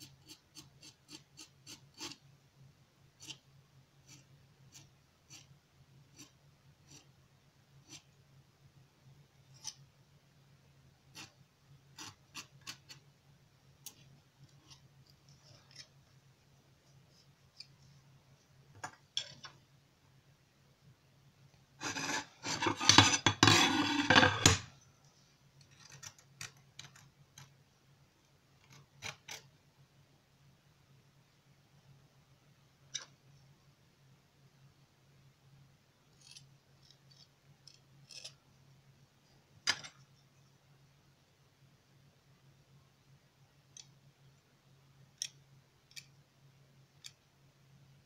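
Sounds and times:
loud knife scraping: 0:21.8 - 0:24.7.

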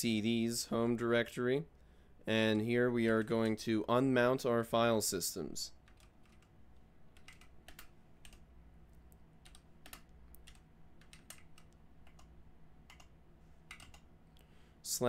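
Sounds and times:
faint keyboard typing: 0:05.8 - 0:14.5.

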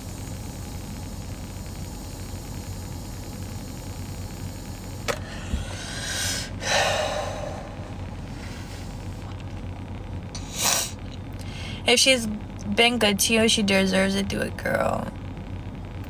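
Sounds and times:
low hum inside car: 0:00.0 - 0:16.0
breathy whooshes: 0:05.2 - 0:09.1.

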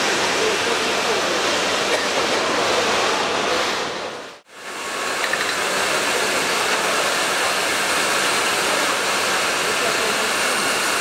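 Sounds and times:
table saw running: 0:04.6 - 0:11.0.

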